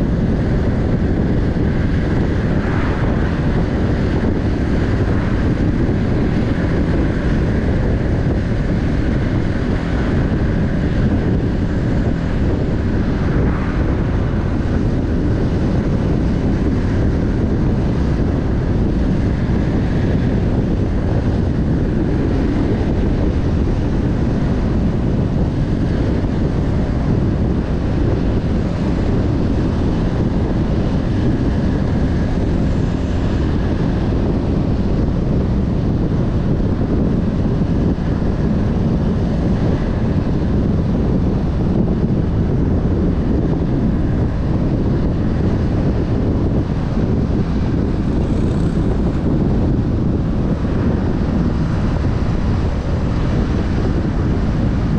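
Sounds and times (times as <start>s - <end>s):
car engine and tyre rumble: 0.0s - 54.9s
wind noise: 0.0s - 54.9s.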